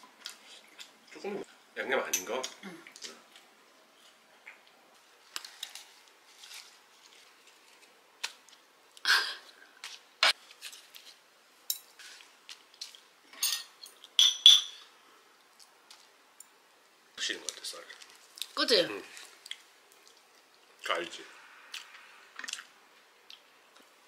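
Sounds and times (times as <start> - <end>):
utensils clinking on ceramic dishes: 13.3 - 14.8.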